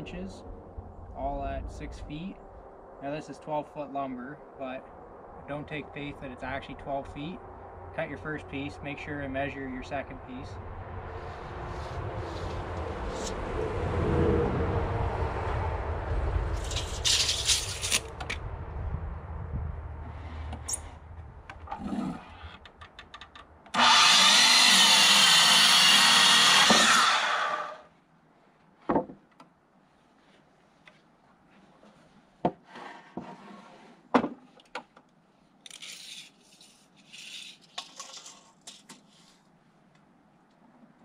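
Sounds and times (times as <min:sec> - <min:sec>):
miter saw cutting wood: 0:23.7 - 0:27.8
boards and tools knocking: 0:28.8 - 0:29.4, 0:34.1 - 0:35.1.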